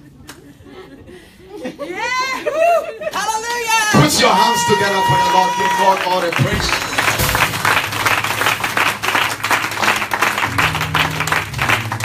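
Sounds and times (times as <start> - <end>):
congregation clapping: 4.0 - 12.0.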